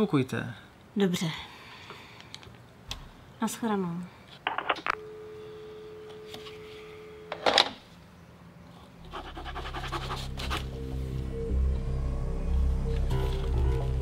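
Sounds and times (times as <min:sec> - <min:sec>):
music: 0:09.1 - 0:14.0.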